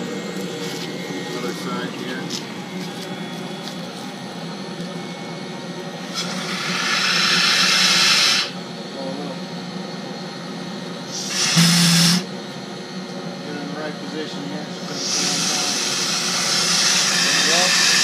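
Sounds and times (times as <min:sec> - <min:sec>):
exhaust steam hissing: 0:06.0 - 0:08.6, 0:11.1 - 0:12.3, 0:14.7 - 0:18.0.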